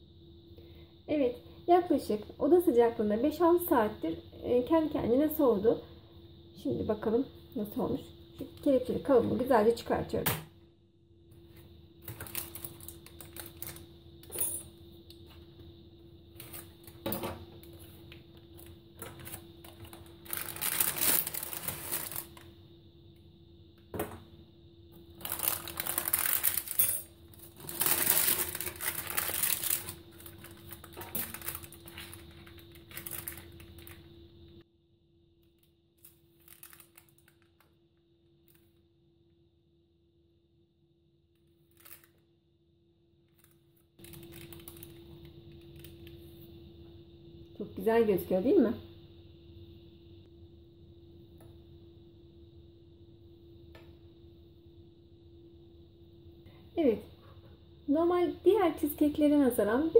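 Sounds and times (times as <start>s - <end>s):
baking paper rustling and crinkling: 12.0s - 13.9s, 18.6s - 22.5s, 25.2s - 26.8s, 27.4s - 34.1s, 36.3s - 37.5s, 43.4s - 45.0s.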